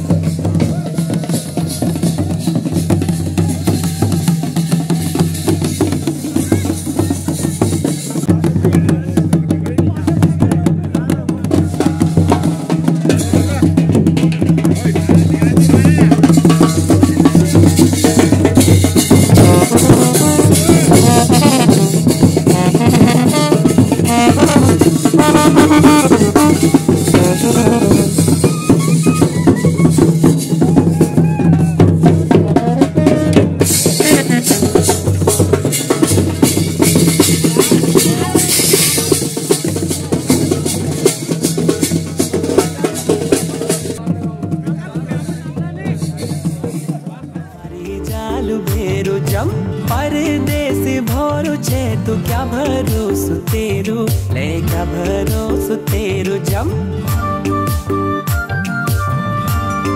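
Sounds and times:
bass drum and snare beat: 0.0 - 59.9
wind instrument melody: 16.5 - 44.2, 54.7 - 59.9.

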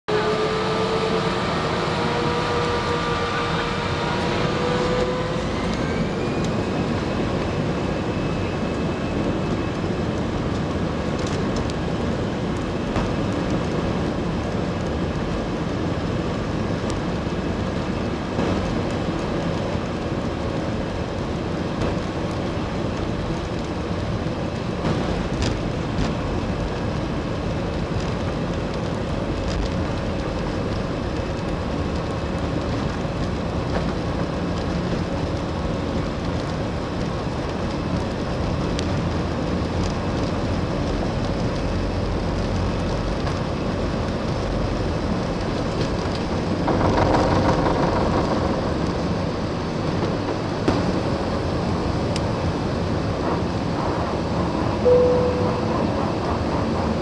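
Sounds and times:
engines and wheels rumbling: 0.0 - 57.0
jet engines spooling up: 0.1 - 10.3.

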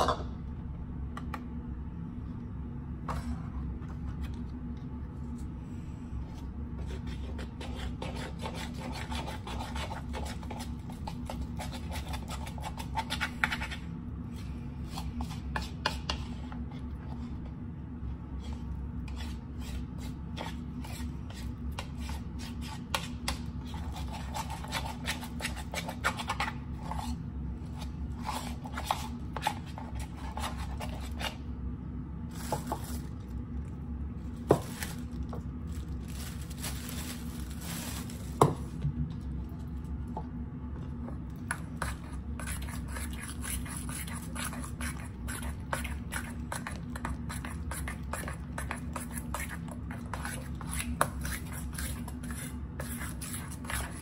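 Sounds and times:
steady low hum: 0.0 - 54.0
dough scraping in bowls: 6.3 - 17.6, 18.2 - 31.5, 41.0 - 54.0.

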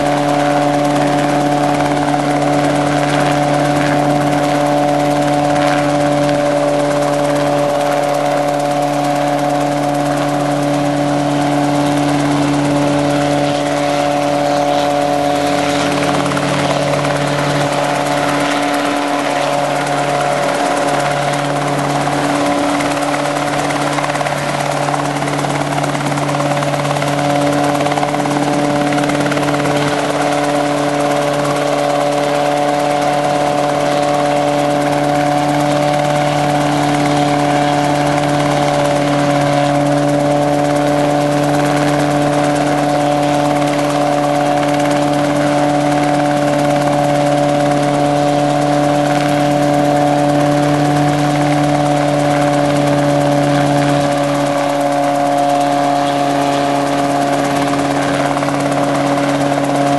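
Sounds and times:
helicopter engine and rotors drone: 0.0 - 59.9.

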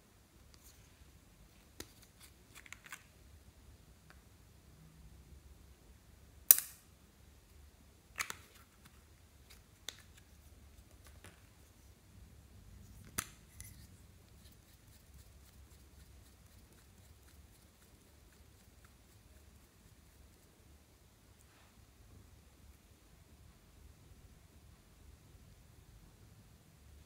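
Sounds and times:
plastic clicks and snaps: 8.2 - 8.6.

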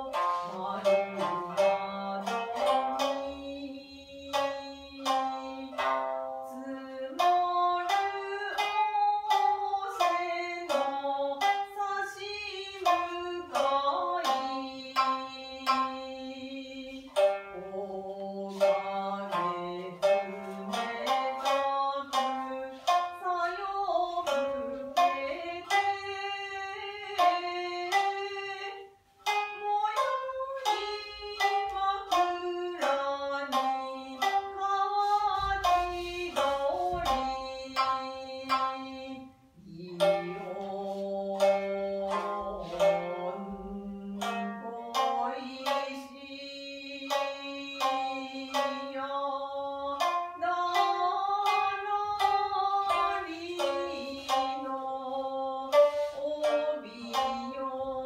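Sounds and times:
shamisen plucked notes: 0.0 - 58.0
person singing long held notes: 29.4 - 58.0.

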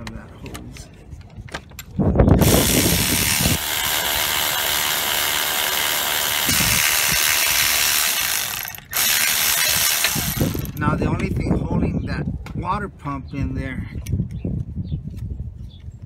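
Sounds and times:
powered ratchet running: 2.4 - 10.9.

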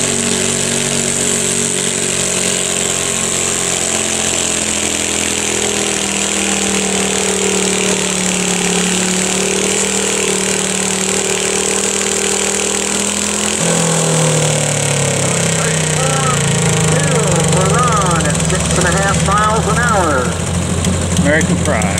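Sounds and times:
garden tractor engine revving hard: 0.0 - 21.9.

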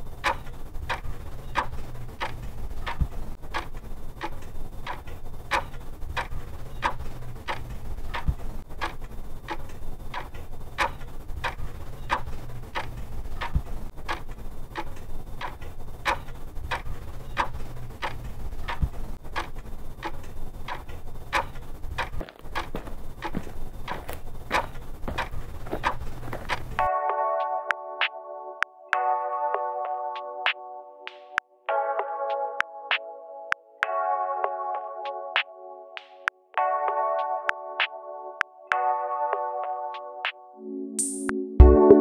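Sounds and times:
clock ticking: 0.0 - 26.8
low steady rumble: 0.0 - 26.8.

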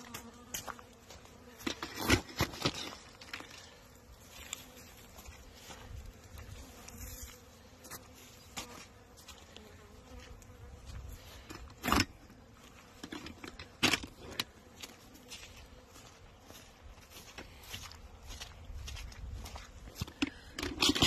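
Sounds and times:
bees buzzing: 0.0 - 16.8.

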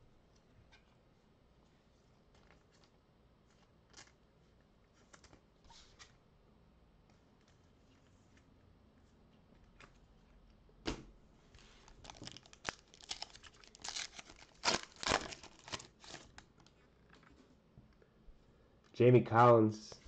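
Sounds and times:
foil crackling rustles: 11.6 - 16.5
foil wrapper ripping: 11.9 - 16.5.

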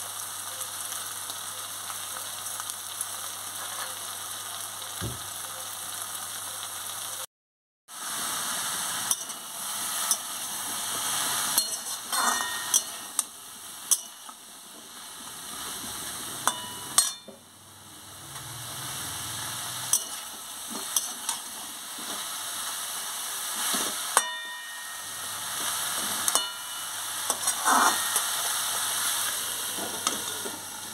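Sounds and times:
vegetables sizzling in a metal pan: 0.0 - 7.3, 7.9 - 30.9
metal spatula scraping a pan: 11.0 - 13.3, 19.8 - 22.3, 23.6 - 30.6.

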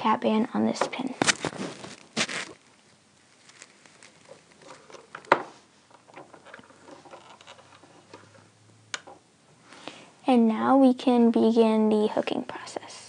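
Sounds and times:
clicks and rustles of rubber bands: 0.8 - 8.4.

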